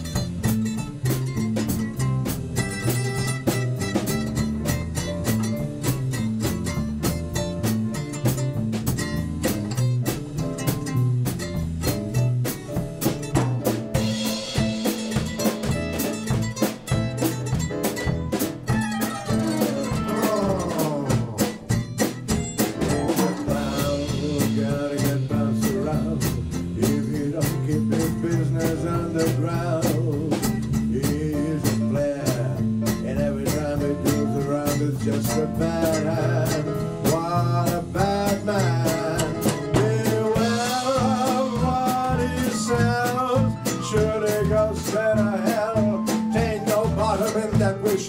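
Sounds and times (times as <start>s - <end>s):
electric keyboard: 0.0s - 24.6s
swing jazz band playing: 0.0s - 48.0s
walking bass line: 0.0s - 48.0s.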